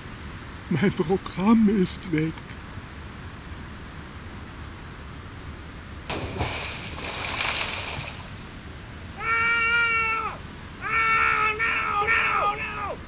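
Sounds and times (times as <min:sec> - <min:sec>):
high wailing cry: 0:09.1 - 0:13.0.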